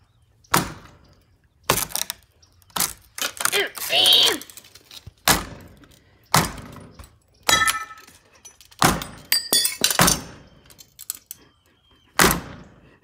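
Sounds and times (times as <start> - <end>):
loose glass clinking: 7.5 - 11.4.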